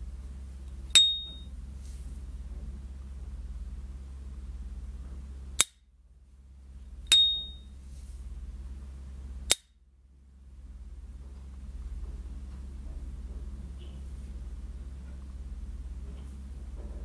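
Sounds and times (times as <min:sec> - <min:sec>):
lighter lid opening with ringing ping: 0:01.0 - 0:01.4, 0:07.1 - 0:07.6.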